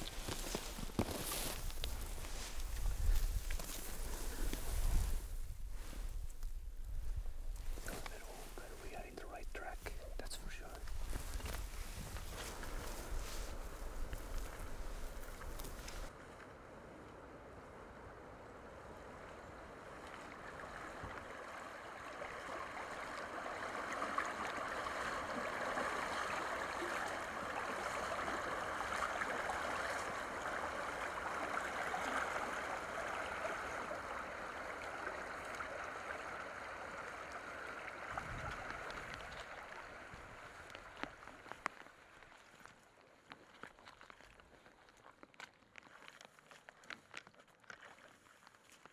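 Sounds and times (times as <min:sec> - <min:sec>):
walking through tall grass: 0:00.0 - 0:16.2, 0:40.5 - 0:48.9.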